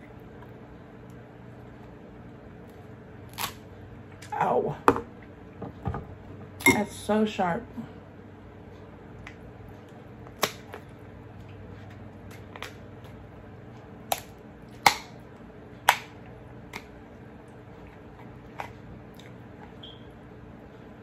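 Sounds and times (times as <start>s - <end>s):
scissors cracking crab shell: 3.3s - 3.6s, 14.1s - 15.2s.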